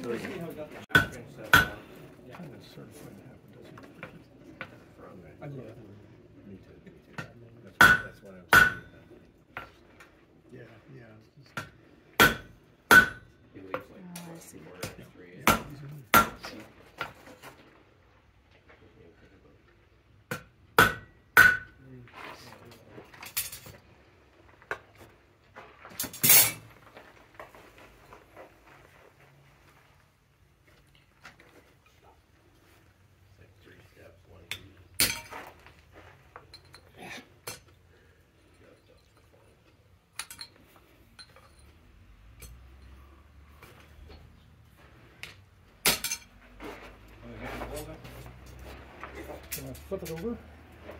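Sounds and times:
hammer striking metal on anvil: 0.9 - 1.8, 7.8 - 9.0, 11.6 - 13.3, 14.8 - 16.4, 20.3 - 21.8
hammer tapping on anvil: 0.9 - 1.8, 7.2 - 9.0, 20.3 - 21.8.

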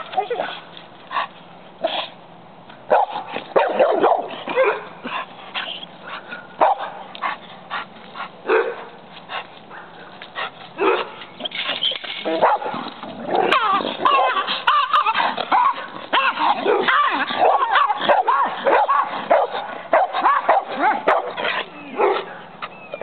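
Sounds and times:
dogs barking: 2.9 - 9.0, 9.7 - 23.0.

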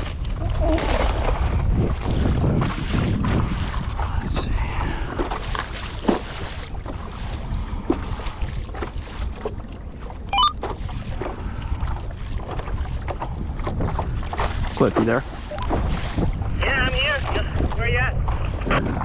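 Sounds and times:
steady low rumble: 0.0 - 6.0
water splashing against hull: 0.0 - 19.0
wind buffeting microphone: 0.0 - 19.0.

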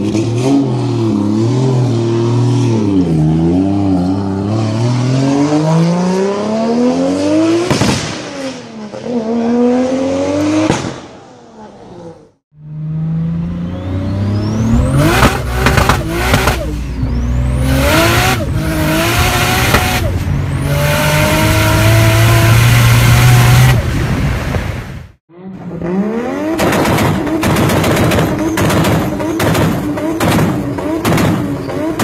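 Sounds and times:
engine revving: 0.0 - 23.9, 25.2 - 32.0
car engine accelerating through gears: 11.6 - 23.9
exhaust pops and bangs: 15.1 - 16.7, 26.6 - 32.0.

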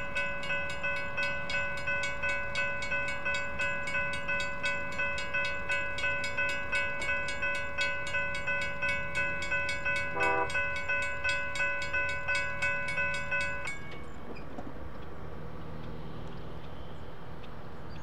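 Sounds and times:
electronic crossing bell: 0.0 - 14.1
mechanical crossing bell: 0.0 - 14.2.

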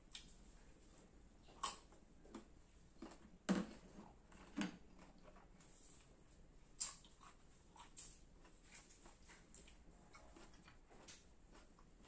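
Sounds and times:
crunchy chewing of mango: 6.7 - 12.0.

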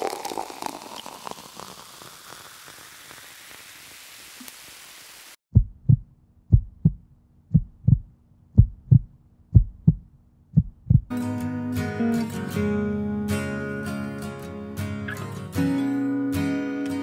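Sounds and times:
steady hiss: 0.0 - 5.4
heartbeat thumps: 5.5 - 11.1.

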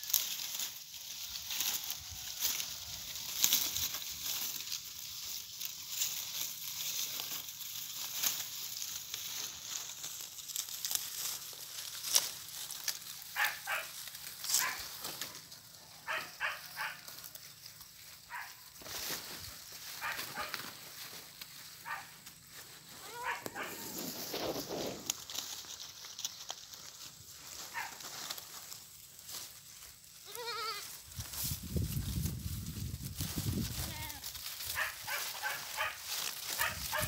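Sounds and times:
dry cornstalks crackling and rustling: 0.0 - 37.0
goats bleating: 30.2 - 31.0.

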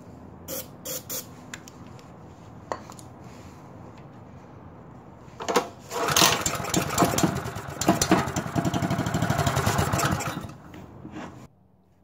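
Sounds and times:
small engine pull-started and running: 5.5 - 10.8.

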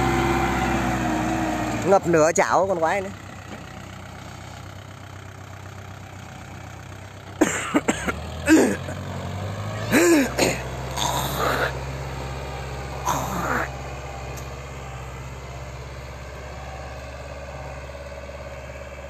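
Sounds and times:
tractor diesel engine under load: 0.0 - 19.0
short human vocal sounds: 9.9 - 11.8, 13.1 - 13.7.

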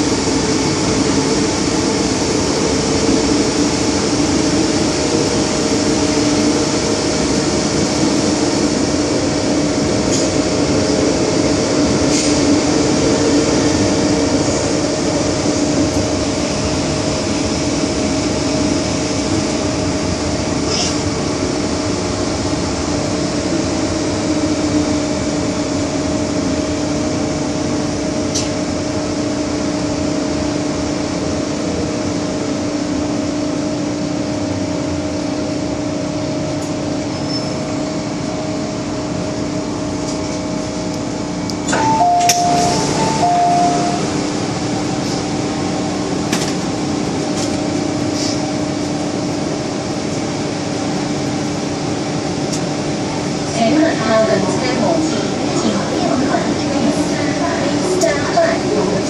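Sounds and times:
train running noise with hum: 0.0 - 59.0
short electronic tones: 41.8 - 44.0
train clatter: 46.2 - 47.7.

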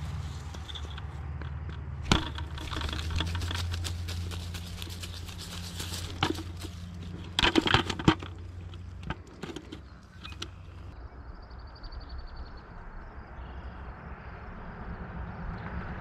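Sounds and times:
sharp clicks and knocks: 0.5 - 10.9.

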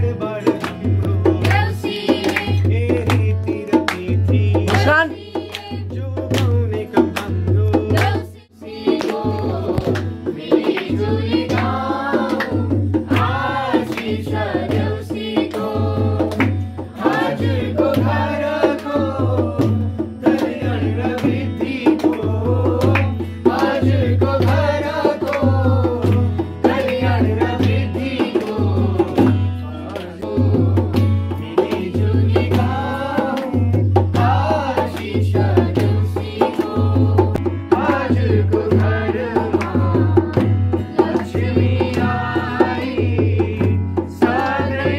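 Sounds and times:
group singing folk song: 0.0 - 44.9
hand drum beat: 0.0 - 44.9.

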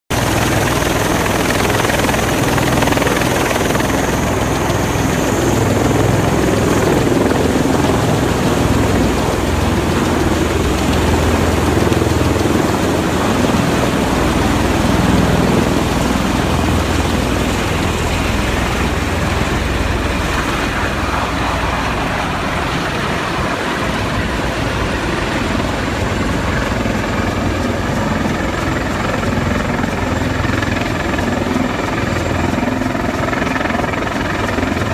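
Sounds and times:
tiltrotor aircraft engines roaring: 0.1 - 34.9.

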